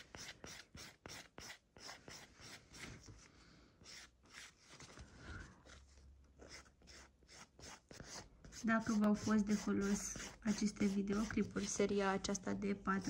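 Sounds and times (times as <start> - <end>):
nail file rasping: 0.0 - 2.6, 6.5 - 11.8.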